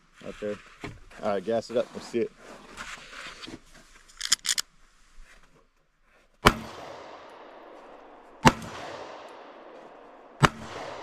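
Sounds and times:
pistol shots echoing: 6.4s - 11.0s.

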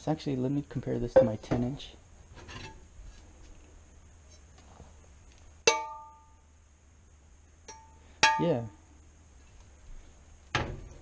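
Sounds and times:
metal pans clanking together: 2.4s - 2.8s.

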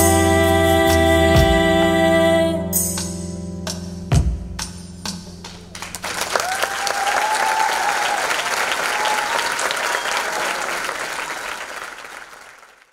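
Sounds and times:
music: 0.0s - 6.4s
audience applauding: 5.7s - 12.9s
cheering calls: 6.2s - 12.4s.

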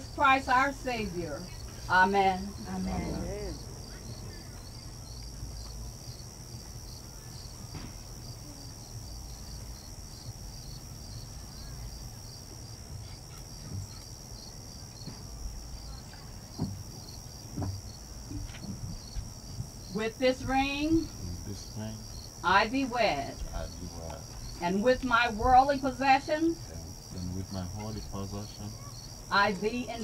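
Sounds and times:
insects chirping: 0.0s - 30.0s
faint knocks: 16.0s - 19.8s.

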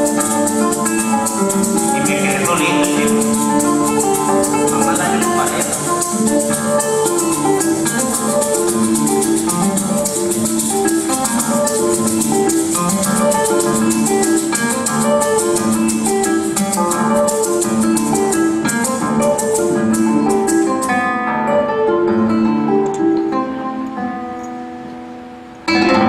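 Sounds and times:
maracas shaking: 0.0s - 21.0s
classical guitar plucking melody: 0.0s - 26.0s
strummed cuatro: 0.0s - 26.0s.

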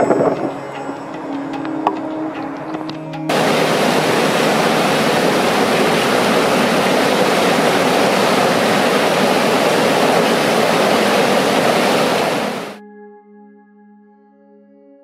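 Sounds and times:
water rushing over rocks: 3.3s - 12.8s.

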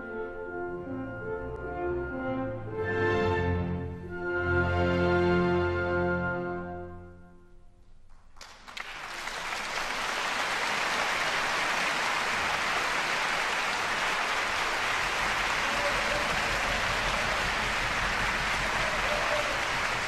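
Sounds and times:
audience applause: 8.4s - 20.0s.

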